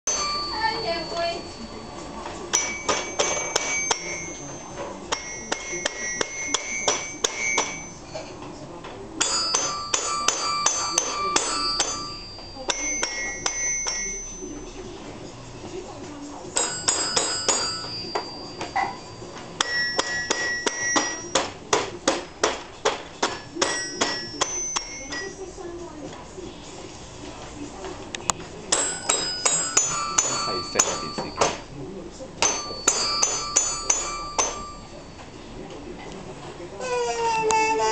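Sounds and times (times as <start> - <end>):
toy xylophone notes: 16.6 - 21.4.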